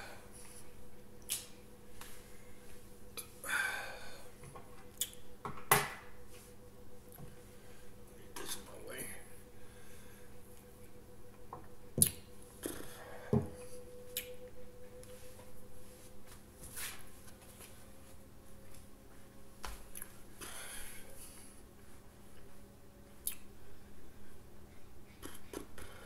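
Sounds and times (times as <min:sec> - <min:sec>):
quiet room hum: 0:00.0 - 0:26.0.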